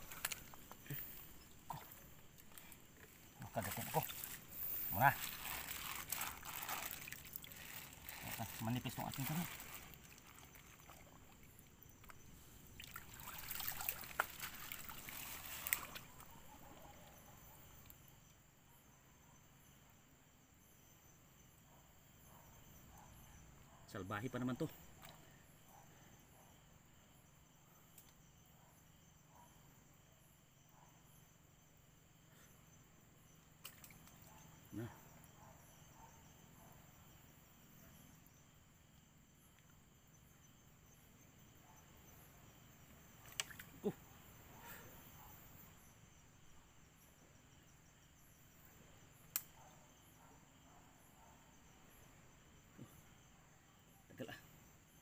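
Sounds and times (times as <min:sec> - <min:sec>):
crickets trilling: 0:00.0 - 0:55.0
night insects chirping: 0:00.0 - 0:55.0
small click: 0:27.9 - 0:28.2, 0:43.2 - 0:43.7, 0:49.3 - 0:49.6.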